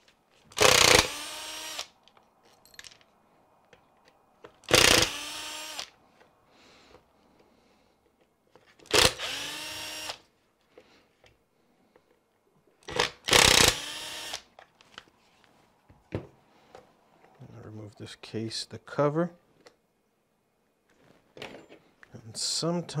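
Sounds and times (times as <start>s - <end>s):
cordless power screwdriver whirring: 0.6s - 2.0s, 4.7s - 5.9s, 8.8s - 10.2s, 12.9s - 14.5s.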